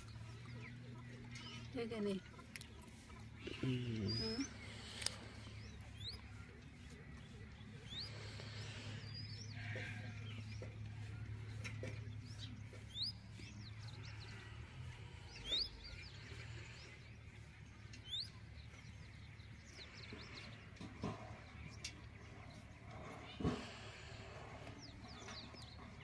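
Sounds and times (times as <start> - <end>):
low steady hum: 0.0 - 26.0
high rising bird chirps: 17.9 - 18.8.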